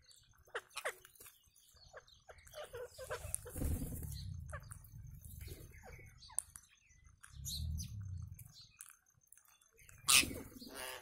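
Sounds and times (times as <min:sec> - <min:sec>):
parakeets calling: 0:00.3 - 0:06.5, 0:09.9 - 0:11.0.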